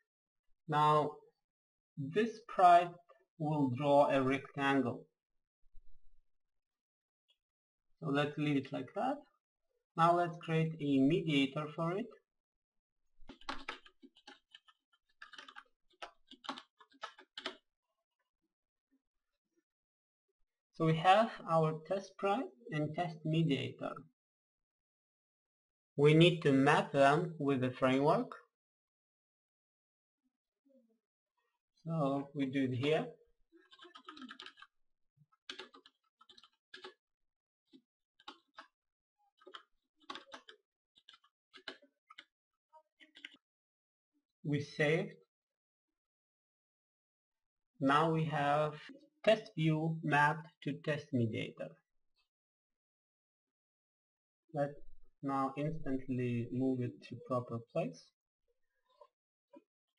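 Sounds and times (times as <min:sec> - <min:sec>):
computer keyboard typing: 0:13.3 - 0:17.6, 0:33.6 - 0:34.7, 0:35.5 - 0:37.0, 0:39.4 - 0:42.3.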